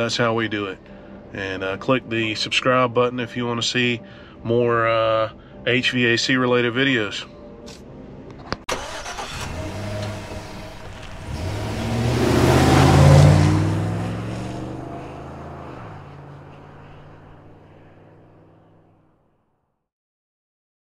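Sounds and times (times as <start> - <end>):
deep whoosh: 10.2 - 18.0.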